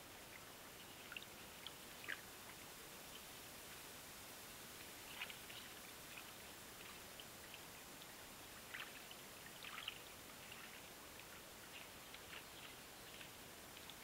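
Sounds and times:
faint steady hiss: 0:00.0 - 0:14.0
soft crackles: 0:00.0 - 0:14.0.

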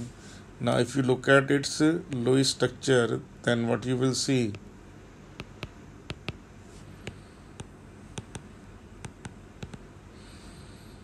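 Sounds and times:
stylus tapping on tablet screen: 0:05.4 - 0:06.4, 0:07.0 - 0:09.9.

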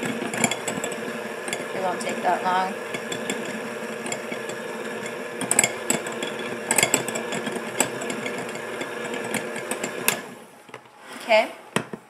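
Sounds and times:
electric hand mixer running: 0:00.0 - 0:10.6.

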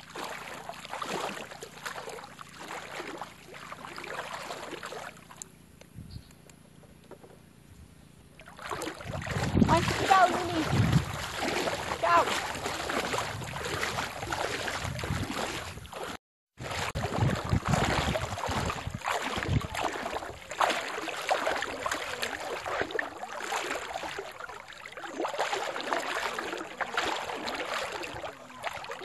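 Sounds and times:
rushing water: 0:00.0 - 0:05.5, 0:08.4 - 0:29.0
wind gusting on microphone: 0:09.0 - 0:15.9, 0:16.6 - 0:19.8.

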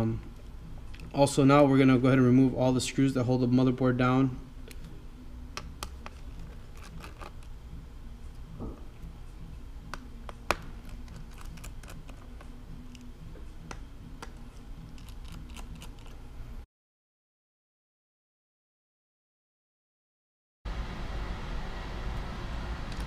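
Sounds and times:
steady low hum: 0:00.0 - 0:16.7.

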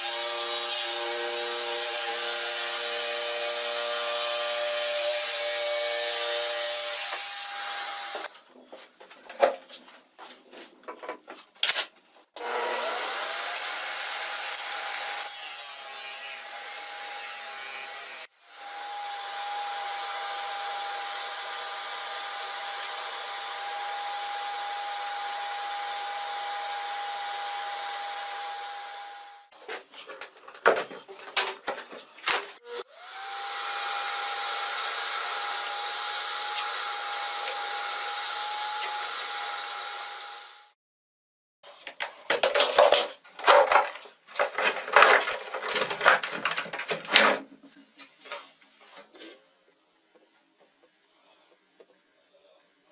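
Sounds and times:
jigsaw cutting wood: 0:00.0 - 0:08.3, 0:12.4 - 0:15.8, 0:16.5 - 0:29.5, 0:32.6 - 0:40.8.

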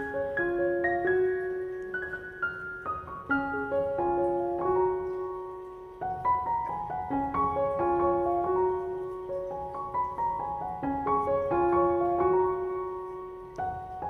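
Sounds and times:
gentle piano melody: 0:00.0 - 0:14.0.

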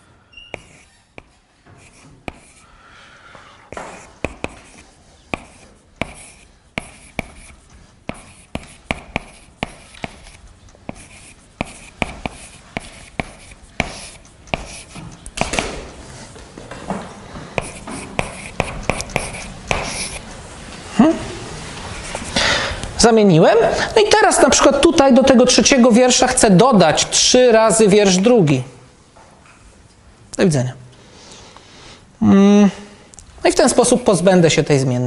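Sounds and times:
chalk tapping on blackboard: 0:00.5 - 0:02.6, 0:03.7 - 0:15.7, 0:17.6 - 0:20.2
chalk scratching on blackboard: 0:00.5 - 0:02.7, 0:03.7 - 0:15.5, 0:17.6 - 0:20.2, 0:21.9 - 0:22.4.

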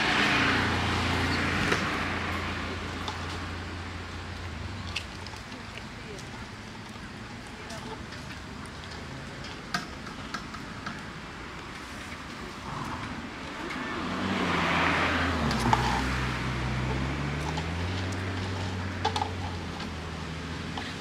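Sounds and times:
vehicle engine passing: 0:00.0 - 0:05.2, 0:12.6 - 0:21.0.

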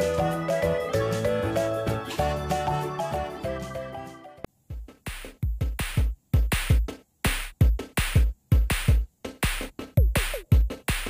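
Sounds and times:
drum machine beat: 0:04.5 - 0:11.0.

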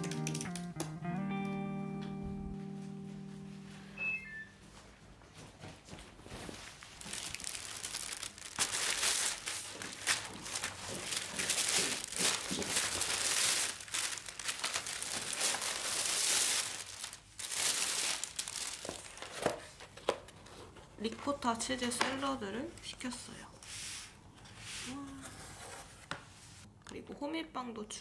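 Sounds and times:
plastic bag rustling: 0:05.6 - 0:20.8.

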